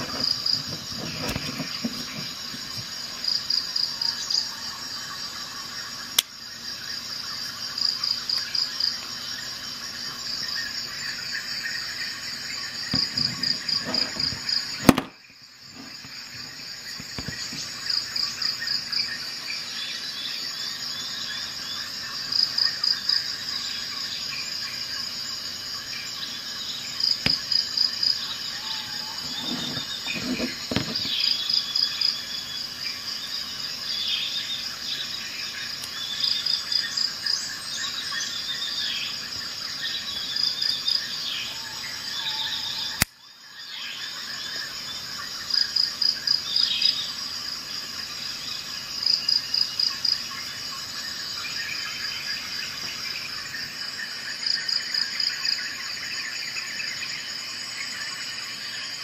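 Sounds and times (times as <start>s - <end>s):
insect chirping: 0.0s - 59.0s
sharp click: 14.8s - 15.2s.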